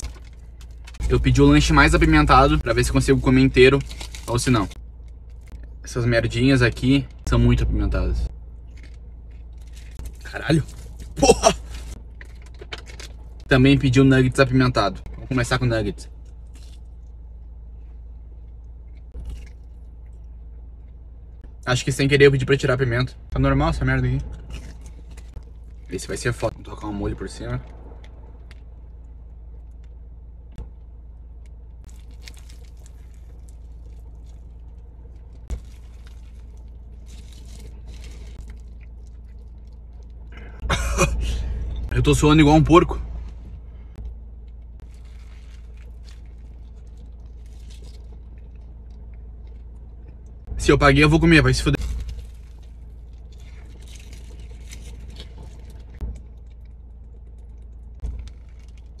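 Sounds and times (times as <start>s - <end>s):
low hum inside car cabin: 0.0s - 59.0s
foil wrapper crinkling: 2.8s - 4.8s, 35.5s - 39.7s, 51.8s - 56.5s
chewing crackles: 8.5s - 13.5s, 16.1s - 17.2s, 18.4s - 21.4s, 24.2s - 26.0s, 31.4s - 40.6s, 43.9s - 50.5s, 51.8s - 59.0s.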